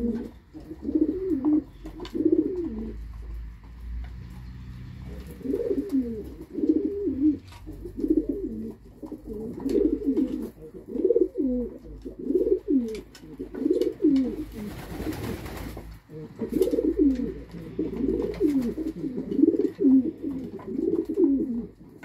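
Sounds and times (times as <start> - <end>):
pigeons cooing: 0.0 - 3.5, 4.2 - 22.0
beaks pecking grain from wooden trough: 16.2 - 22.0.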